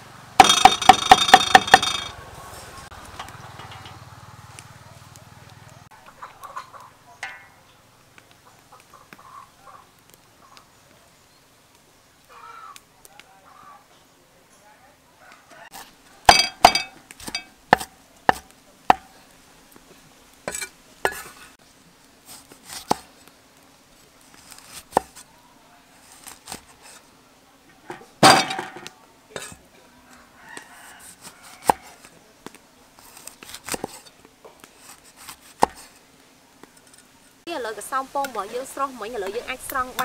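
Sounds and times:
cleaver chopping on wooden block: 0.4s - 2.1s, 16.3s - 19.1s, 35.2s - 35.8s.

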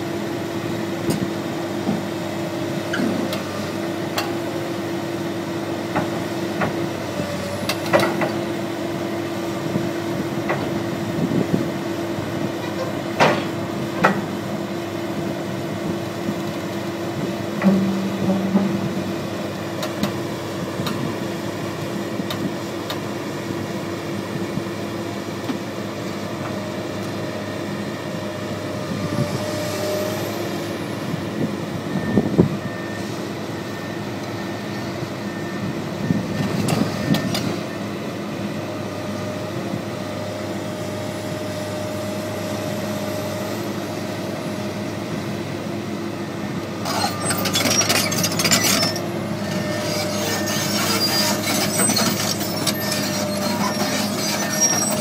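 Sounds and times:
excavator diesel engine running: 0.0s - 55.0s
track rattle and squeal: 1.1s - 10.9s, 26.3s - 38.0s, 46.2s - 55.0s
metallic knocks from steel tracks: 17.6s - 19.2s.

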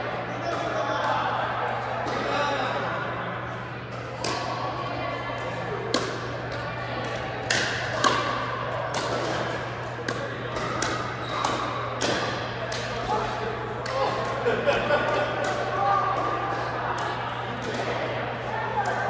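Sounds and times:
paddles hitting plastic ball: 5.9s - 13.2s.

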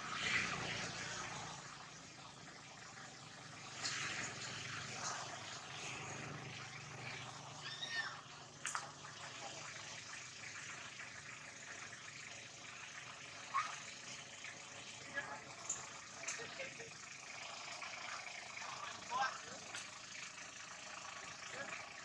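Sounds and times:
steady outdoor hiss: 0.0s - 22.0s
young monkeys calling: 6.9s - 8.3s.

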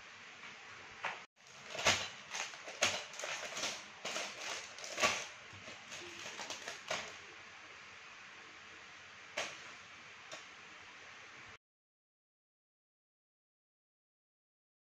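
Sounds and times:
plastic bags crinkling: 1.4s - 7.2s
plastic bricks rattling: 1.4s - 7.2s.

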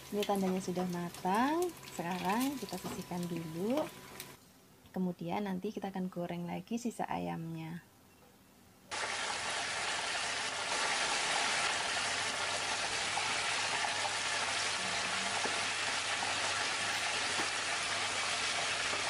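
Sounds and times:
chicken deep-frying in hot oil: 0.0s - 4.4s, 8.9s - 19.0s.

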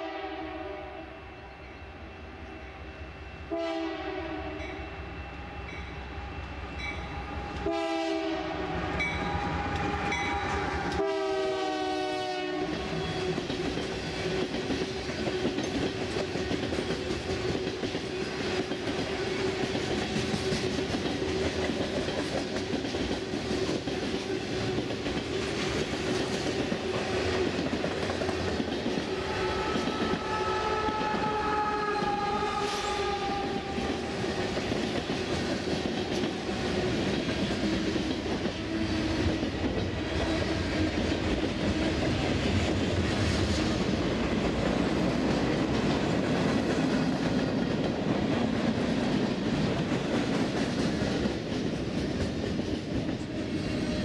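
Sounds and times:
train horn blasts: 0.0s - 1.2s, 3.4s - 5.0s, 7.2s - 13.0s, 29.2s - 34.0s
train wheels on rails: 1.5s - 54.0s.

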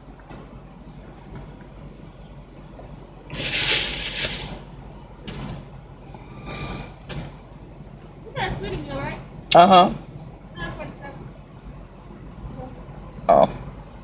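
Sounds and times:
loud sliding noise: 3.3s - 4.6s
rustling: 3.3s - 4.6s.

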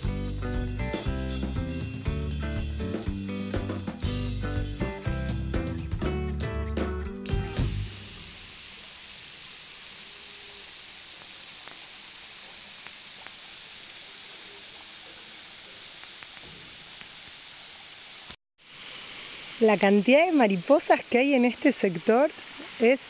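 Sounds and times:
waterfall splashing onto rocks: 7.6s - 23.0s.

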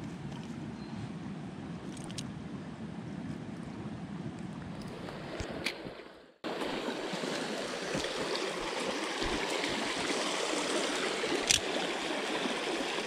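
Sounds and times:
creek water splashing over stones: 5.0s - 13.0s.

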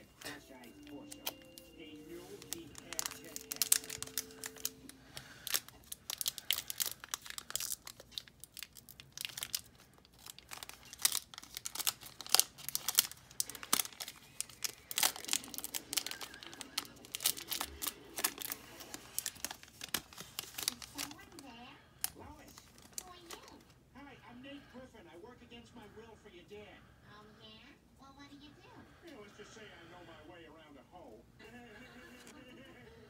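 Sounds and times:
foil wrapper crinkling and tearing: 0.0s - 23.7s.

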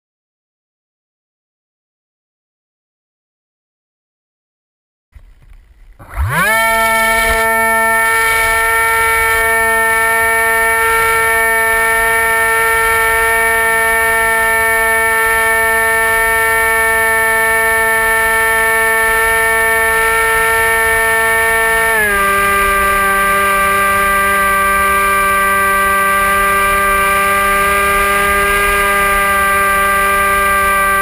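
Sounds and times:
electric motor and propeller whine: 5.2s - 31.0s.

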